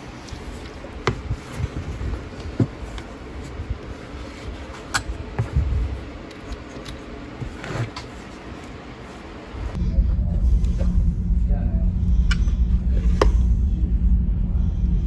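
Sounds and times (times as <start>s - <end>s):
low rumble: 9.6s - 15.0s.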